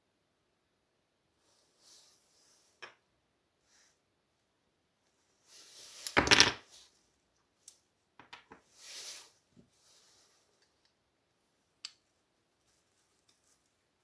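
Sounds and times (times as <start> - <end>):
soft hiss: 1.0 - 14.0.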